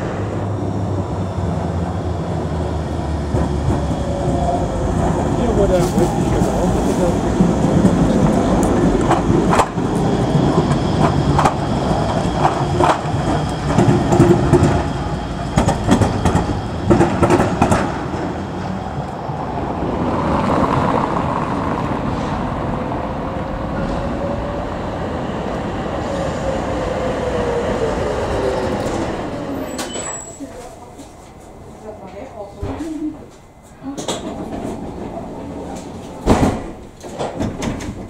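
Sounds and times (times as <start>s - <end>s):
faint tram whine: 0.0s - 38.0s
tram running rumble: 0.0s - 38.0s
tram wheels clacking over rail joints: 1.7s - 24.6s, 32.1s - 38.0s.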